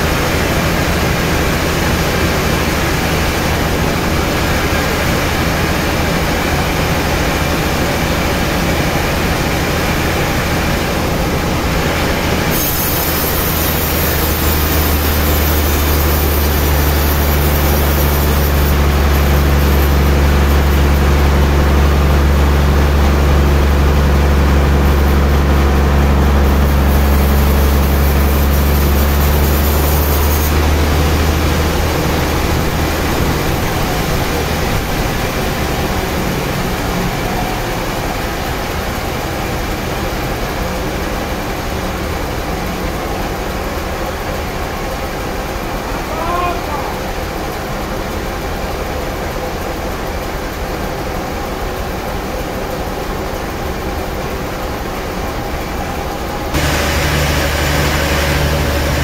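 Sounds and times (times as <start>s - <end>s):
band saw mill low drone: 0.0s - 59.0s
saw hiss: 12.4s - 21.2s, 26.0s - 38.4s, 56.6s - 59.0s.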